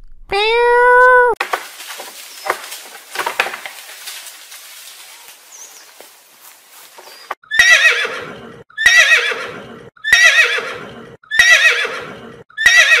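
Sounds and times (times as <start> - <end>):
horse whinnying: 7.5 - 13.0.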